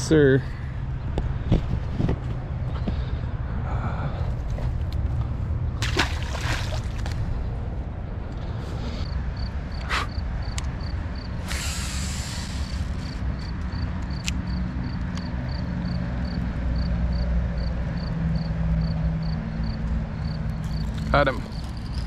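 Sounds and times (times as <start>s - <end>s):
cricket chirping: 9.0s - 22.0s
brief hiss: 11.5s - 13.2s.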